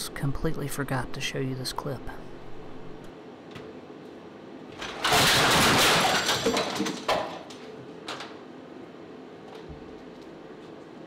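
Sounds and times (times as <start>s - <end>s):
crash and clatter: 4.7s - 8.3s.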